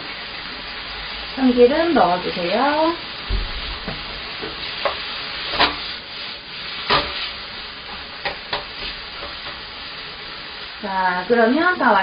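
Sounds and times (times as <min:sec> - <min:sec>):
food sizzling in a frying pan: 0:00.0 - 0:12.0
spatula knocking and scraping pan: 0:03.3 - 0:05.9, 0:06.8 - 0:09.7.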